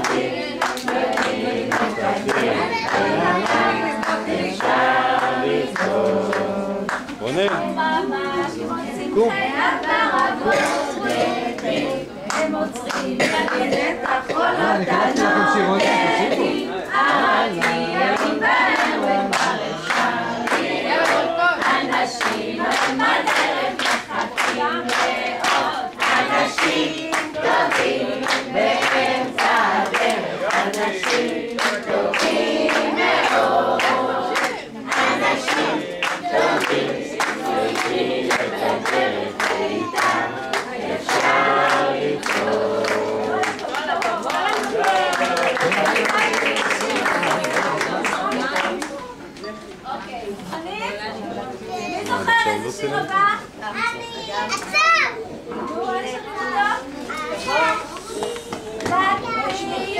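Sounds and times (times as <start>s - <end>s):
rhythmic hand clapping: 0.0s - 8.4s, 9.2s - 49.2s
children singing in unison: 0.0s - 45.8s.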